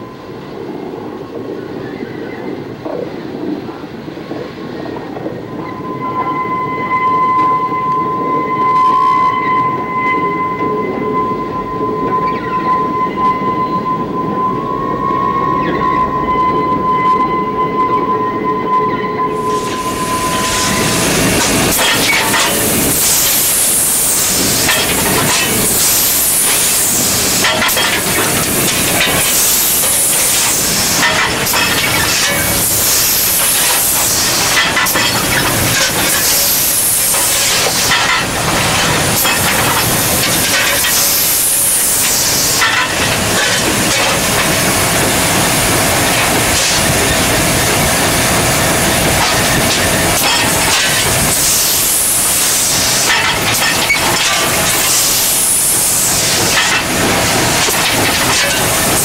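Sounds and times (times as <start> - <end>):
locomotive rumble and clatter: 0.0 - 59.0
steam hissing: 19.3 - 59.0.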